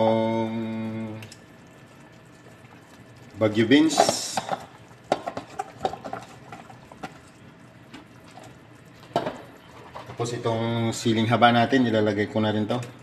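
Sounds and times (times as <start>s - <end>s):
broth simmering in a pot: 0.0s - 13.0s.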